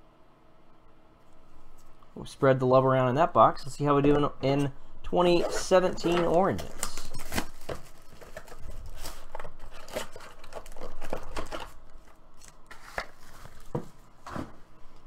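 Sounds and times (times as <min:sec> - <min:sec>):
packaging crinkling and tearing: 0:05.5 - 0:13.8.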